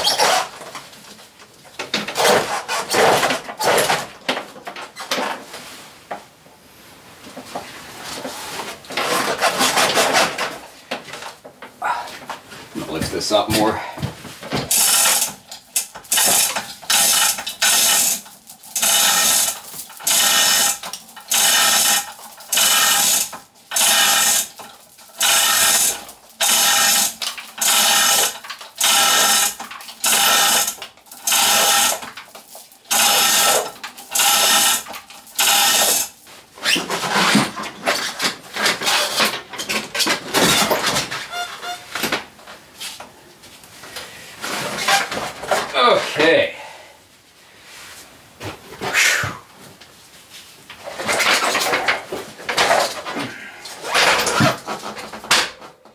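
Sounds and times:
hand ratchet clicking: 0:14.7 - 0:32.0, 0:32.9 - 0:36.1.

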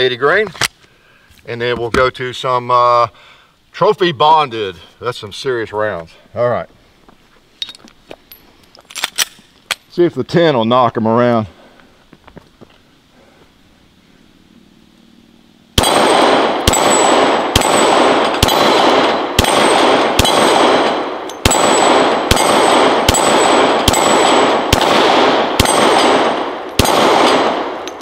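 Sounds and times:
pistol shots: 0:15.8 - 0:28.0.

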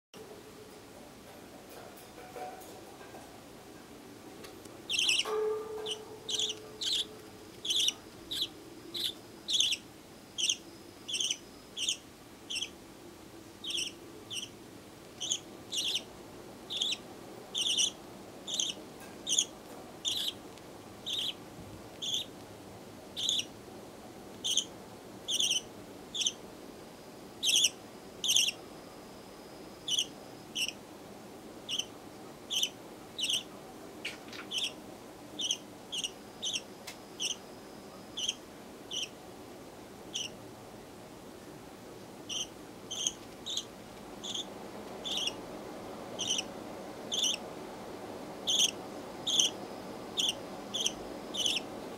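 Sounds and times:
budgerigar chick chirping: 0:04.9 - 0:09.8, 0:10.4 - 0:12.7, 0:13.6 - 0:14.5, 0:15.2 - 0:16.1, 0:16.7 - 0:17.0, 0:17.6 - 0:20.4, 0:21.0 - 0:21.4, 0:22.0 - 0:22.3, 0:23.2 - 0:23.5, 0:24.4 - 0:24.7, 0:25.3 - 0:26.4, 0:27.4 - 0:28.6, 0:29.8 - 0:30.8, 0:31.7 - 0:31.9, 0:32.5 - 0:33.5, 0:34.1 - 0:34.8, 0:35.4 - 0:37.4, 0:38.1 - 0:39.2, 0:40.1 - 0:40.4, 0:42.3 - 0:45.4, 0:46.2 - 0:46.5, 0:47.1 - 0:47.4, 0:48.4 - 0:49.6, 0:50.2 - 0:51.7.

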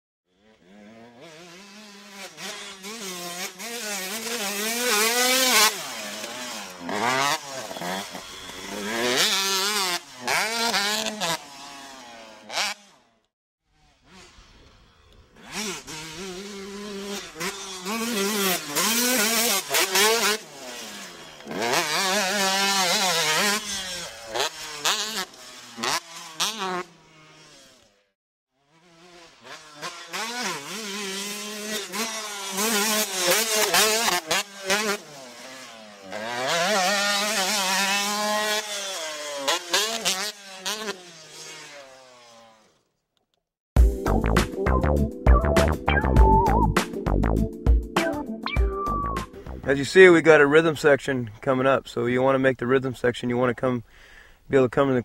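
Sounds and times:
motocross bike engine revving: 0:00.3 - 0:42.9.

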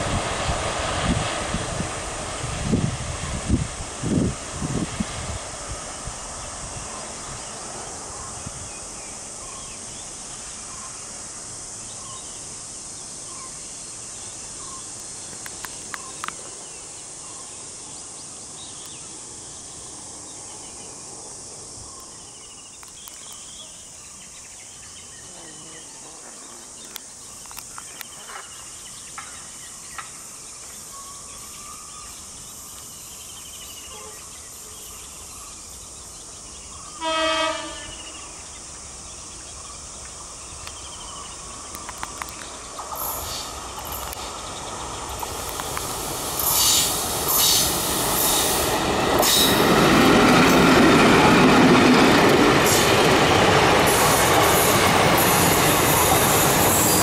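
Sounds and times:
high-pitched insect drone: 0:06.2 - 0:57.0
sharp clicks: 0:45.1 - 0:46.0.

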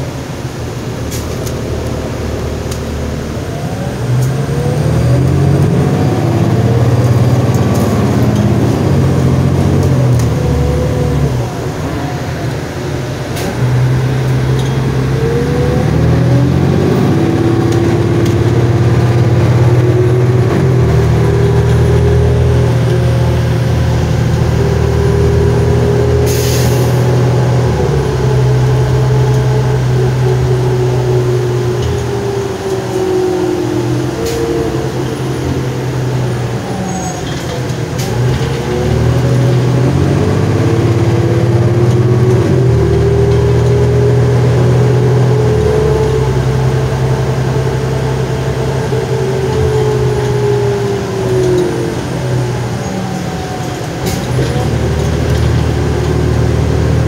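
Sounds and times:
bus diesel engine: 0:00.0 - 0:57.0
brief air hiss: 0:26.3 - 0:27.0.

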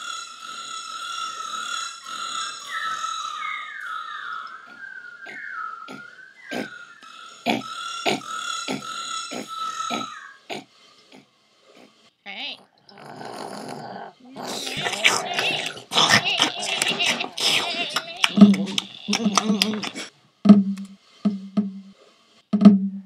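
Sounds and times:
sharp knocks: 0:18.2 - 0:21.9, 0:22.5 - 0:23.0.

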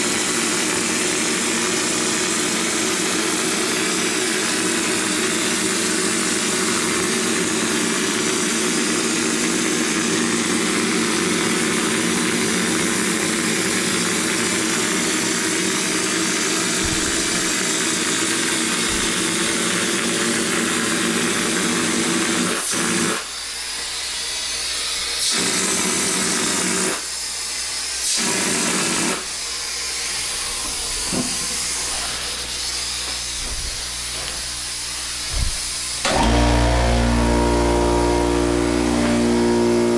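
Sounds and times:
air compressor humming: 0:00.0 - 0:39.9
spray gun hissing: 0:01.9 - 0:20.0, 0:22.6 - 0:36.4.

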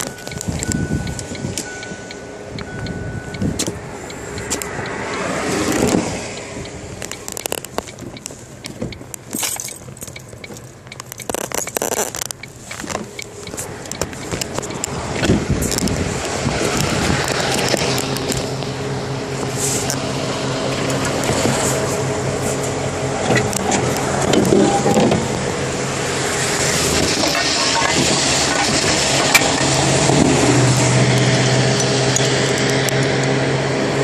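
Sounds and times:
highway traffic passing: 0:00.0 - 0:34.0
handling clicks and rattles: 0:05.6 - 0:18.7.

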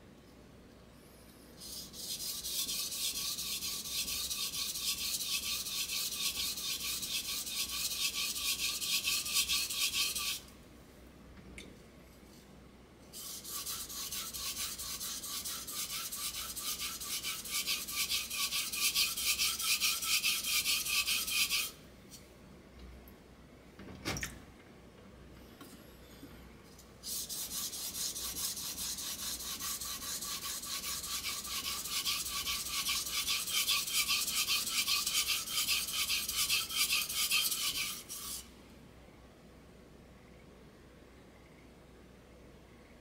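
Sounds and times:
knife scraping on whetstone: 0:01.6 - 0:10.4, 0:13.2 - 0:21.8, 0:27.0 - 0:38.5.

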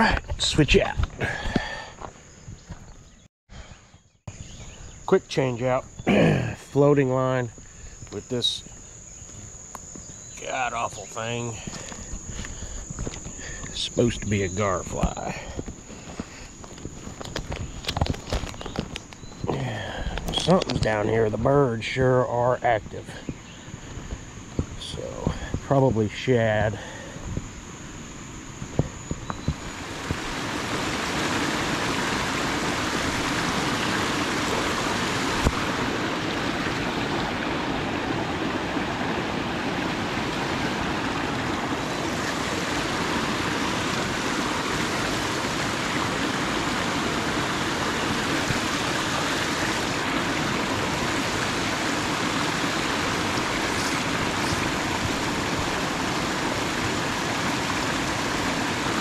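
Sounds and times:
river water rushing over rocks: 0:29.5 - 0:59.0.

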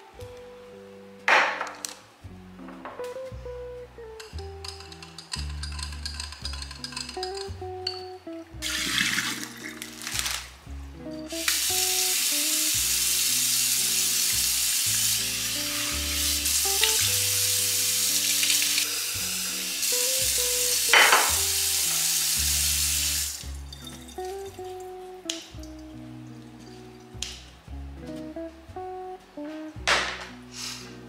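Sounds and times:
background music: 0:00.0 - 0:31.0
faucet running into steel sink: 0:08.6 - 0:09.8, 0:11.3 - 0:24.5
water splash: 0:08.7 - 0:10.4.

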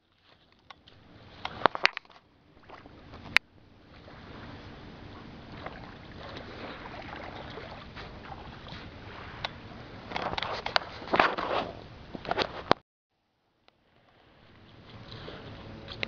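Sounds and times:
camera handling rumble: 0:00.4 - 0:02.2, 0:10.1 - 0:12.8.

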